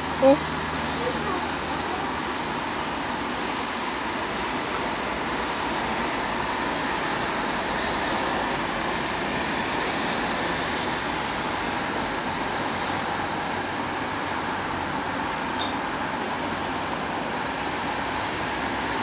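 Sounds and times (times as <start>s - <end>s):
road traffic passing: 0.0s - 19.0s.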